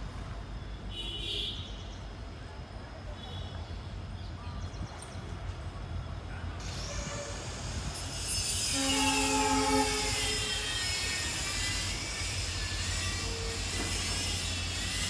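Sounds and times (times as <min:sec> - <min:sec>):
locomotive engine rumble: 0:02.0 - 0:15.0
locomotive horn: 0:06.7 - 0:07.6, 0:08.5 - 0:11.6, 0:12.8 - 0:14.6.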